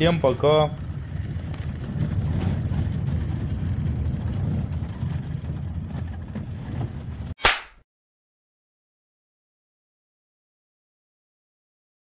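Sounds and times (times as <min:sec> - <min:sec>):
car road noise rumble: 0:00.0 - 0:07.4.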